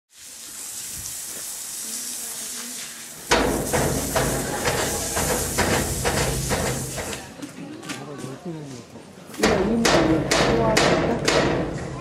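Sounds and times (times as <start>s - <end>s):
broom sweeping wet concrete: 0.1s - 7.5s.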